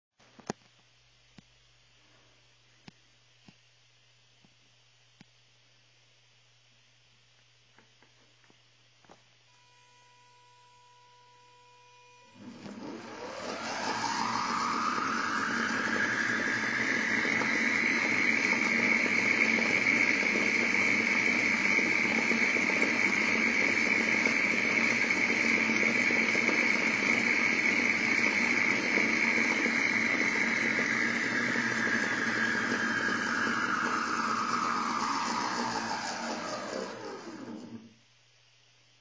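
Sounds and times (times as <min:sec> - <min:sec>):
electric motors whining: 0:09.5 - 0:37.9.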